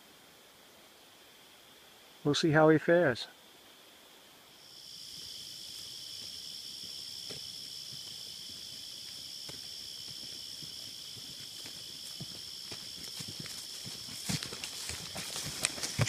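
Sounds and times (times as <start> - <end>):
insects trilling: 0.0 - 16.0
faint footfalls: 6.2 - 16.0.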